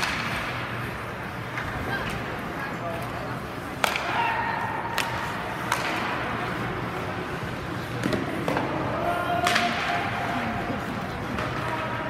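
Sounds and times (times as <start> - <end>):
hockey sticks and puck clacking: 0.0 - 12.0.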